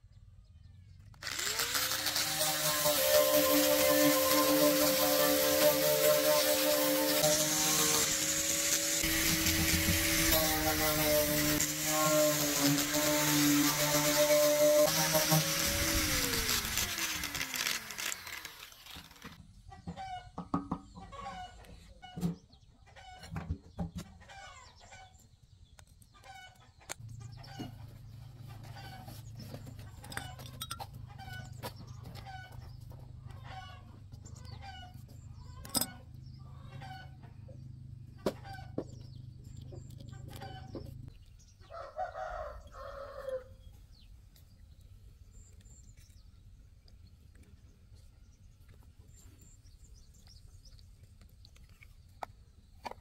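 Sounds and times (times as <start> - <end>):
chickens clucking: 19.5 - 25.2, 26.1 - 43.4.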